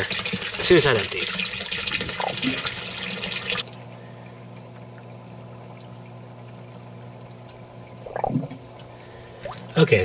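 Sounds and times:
water splashing from drain pipe: 0:00.0 - 0:03.9
faint water trickling: 0:00.0 - 0:10.0
submersible pump humming: 0:00.0 - 0:10.0.

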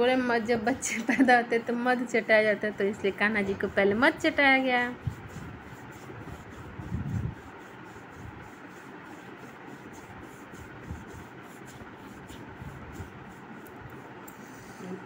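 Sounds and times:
low steady background hiss: 0:00.0 - 0:15.0.

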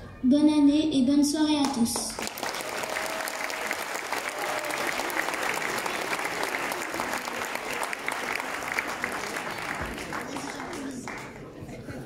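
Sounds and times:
audience applauding: 0:02.0 - 0:11.6.

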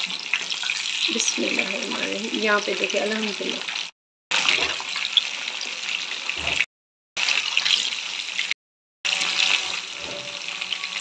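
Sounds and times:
fish sizzling in hot oil: 0:00.0 - 0:11.0.

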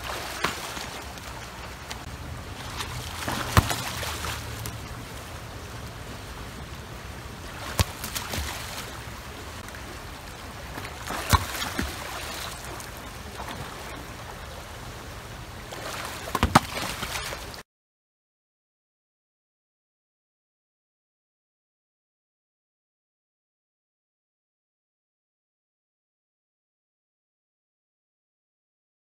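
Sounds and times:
pool water splashing: 0:00.0 - 0:17.6.

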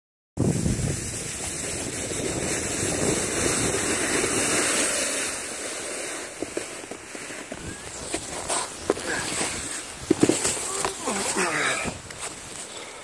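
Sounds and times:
wind buffeting microphone: 0:00.4 - 0:04.7, 0:07.4 - 0:12.5
snow hissing under board: 0:00.4 - 0:13.0.

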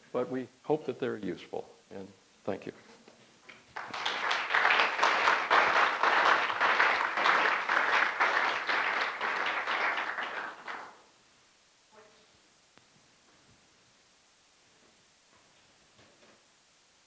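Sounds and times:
audience applauding: 0:03.7 - 0:11.0.

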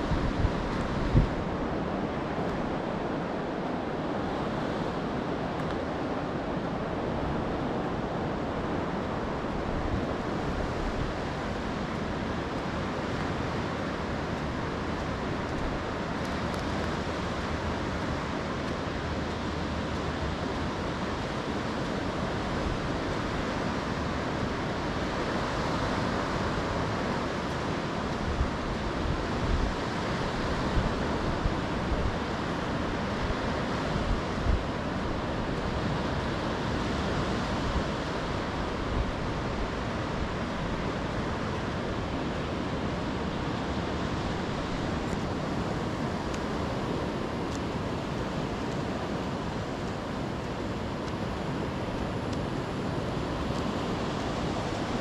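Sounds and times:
wind bumps on microphone: 0:00.0 - 0:03.6
sea surf on beach: 0:00.0 - 0:55.0
wind: 0:00.0 - 0:55.0.

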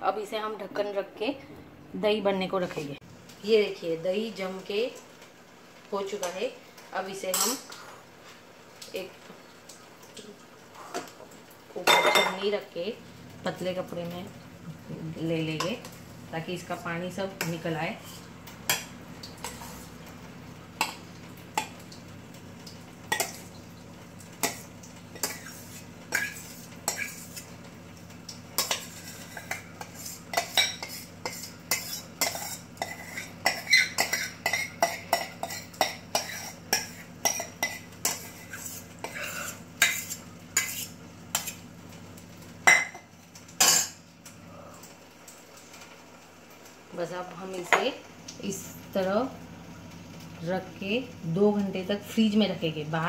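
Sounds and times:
steel spoon scraping a steel pot: 0:25.2 - 0:27.5, 0:28.6 - 0:41.6.

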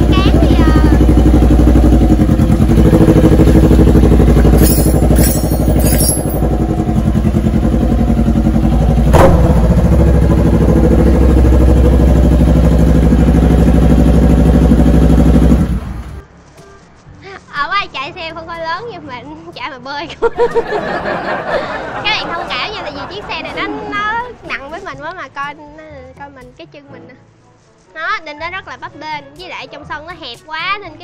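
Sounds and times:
motorcycle engine at low revs: 0:00.0 - 0:16.2
sharp metal clank: 0:04.4 - 0:06.6.

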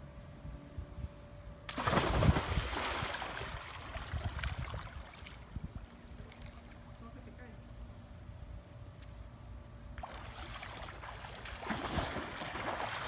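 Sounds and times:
person splashing into pool: 0:01.7 - 0:05.3, 0:10.0 - 0:13.0.

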